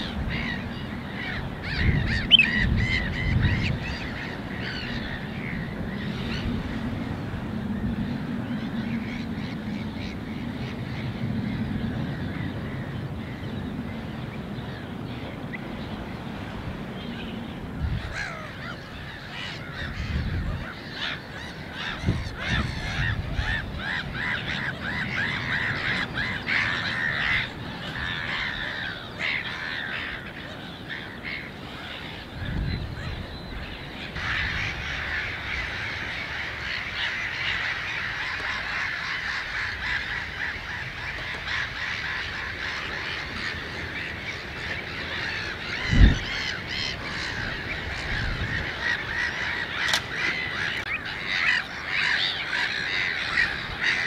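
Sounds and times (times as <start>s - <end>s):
waterbirds calling: 0.0s - 54.0s.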